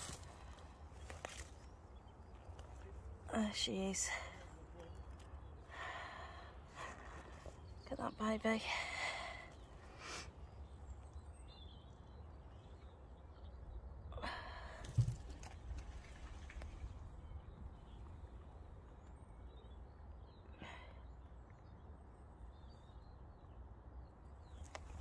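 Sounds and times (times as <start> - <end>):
low rumble: 14.6 - 19.5.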